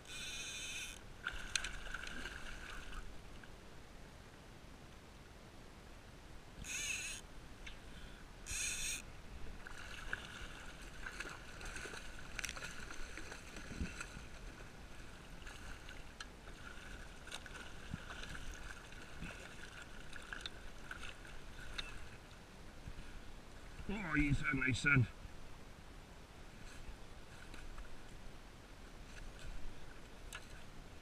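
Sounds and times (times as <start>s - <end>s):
water lapping against a kayak: 0.0s - 3.6s, 9.4s - 24.0s.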